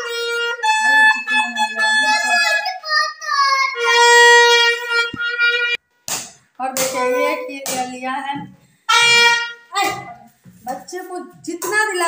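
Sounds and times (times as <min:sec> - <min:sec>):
reedy wind instrument notes: 0:00.0 - 0:02.8, 0:03.4 - 0:05.8, 0:08.9 - 0:10.0.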